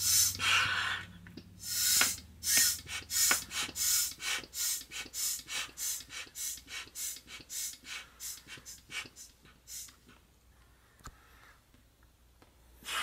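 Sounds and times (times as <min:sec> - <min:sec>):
air pump hissing puffs: 0:00.0 - 0:01.0, 0:01.6 - 0:10.2.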